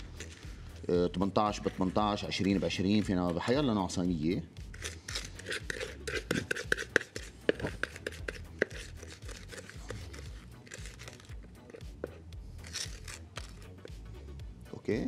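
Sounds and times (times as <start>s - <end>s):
spatula scraping bowl: 1.5s - 3.0s, 4.7s - 14.0s
cornflakes crunching and crackling: 8.7s - 11.4s, 12.6s - 13.7s.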